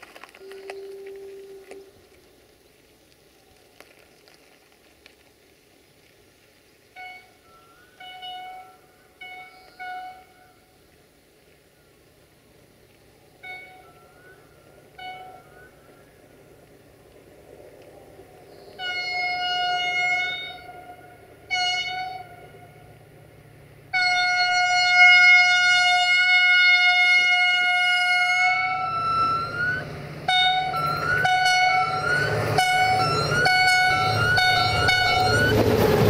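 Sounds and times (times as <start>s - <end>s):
train engine rumble: 0.0s - 36.0s
locomotive air horn: 0.4s - 2.2s, 6.9s - 10.8s, 13.4s - 16.0s, 18.6s - 23.0s, 23.8s - 36.0s.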